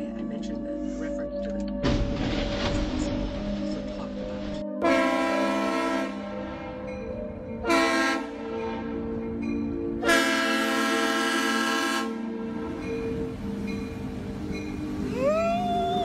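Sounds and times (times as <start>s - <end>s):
locomotive air horn blasts: 4.8s - 6.4s, 7.6s - 8.7s, 10.0s - 12.6s.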